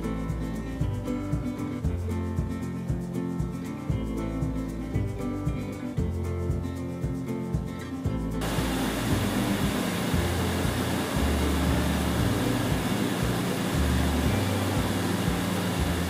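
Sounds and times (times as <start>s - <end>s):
bass of background music: 0.0s - 16.0s
air handling rushing noise: 8.4s - 16.0s.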